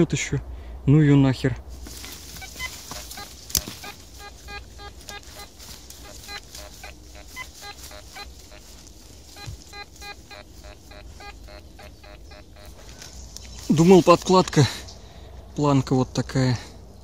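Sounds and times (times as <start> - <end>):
metal detector beeping: 2.0 - 14.0.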